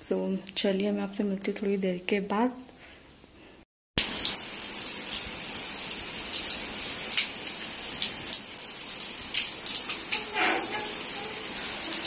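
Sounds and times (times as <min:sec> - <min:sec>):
sharp raindrop taps: 0:04.0 - 0:11.2
steady rain falling: 0:04.0 - 0:12.0.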